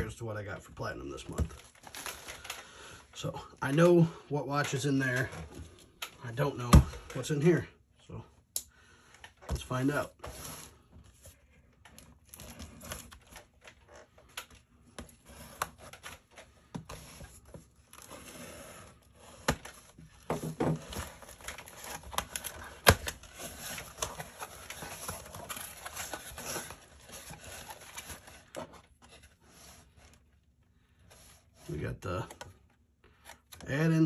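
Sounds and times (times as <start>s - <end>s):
cardboard scraping and rustling: 9.6s - 14.3s, 14.9s - 30.3s.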